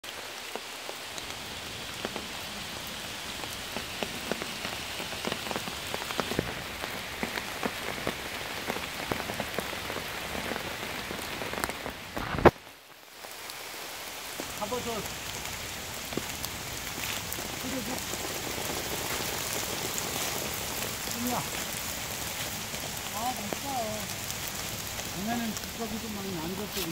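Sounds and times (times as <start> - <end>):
rain on leaves: 0.0 - 26.9.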